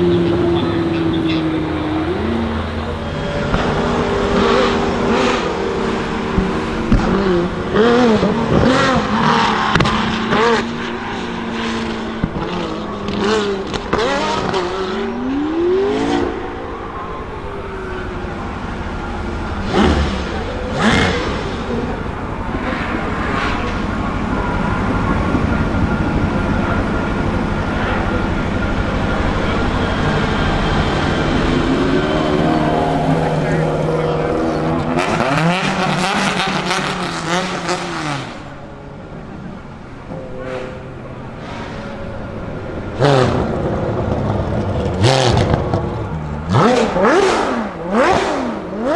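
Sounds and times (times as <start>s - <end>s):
racing car engine drone: 0.0s - 48.9s
faint high engine whine: 11.0s - 35.0s.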